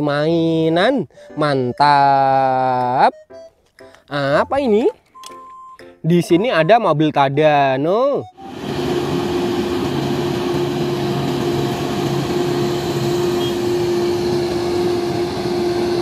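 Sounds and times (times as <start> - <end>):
crane engine droning: 8.3 - 16.0.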